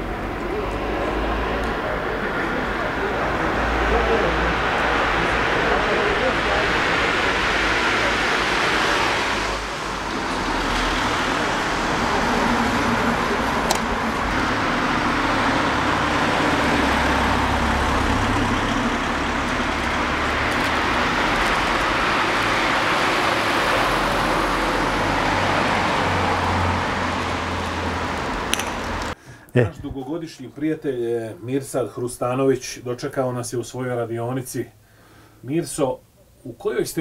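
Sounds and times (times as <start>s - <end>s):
cars driving past: 0.0s - 29.2s.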